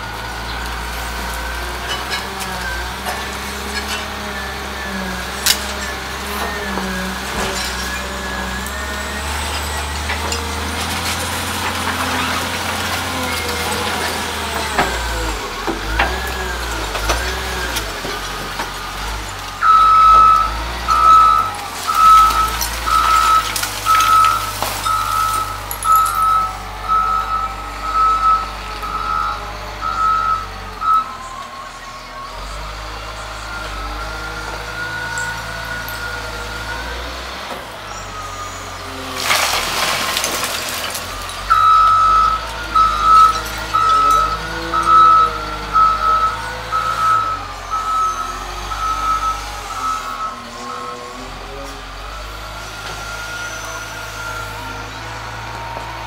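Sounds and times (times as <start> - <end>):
loader diesel engine under load: 0.0 - 56.0
reversing alarm beeping: 18.8 - 38.9, 41.3 - 51.5, 52.1 - 56.0.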